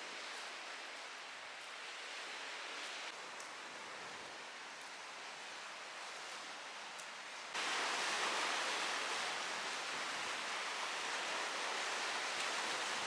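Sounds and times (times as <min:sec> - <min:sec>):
waves washing over rocks: 0:07.6 - 0:13.0.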